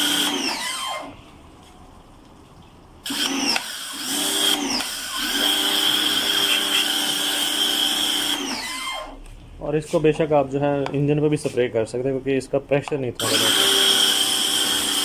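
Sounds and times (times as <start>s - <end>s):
pressure washer motor whining: 0.0s - 1.2s, 3.0s - 9.2s, 13.2s - 15.0s.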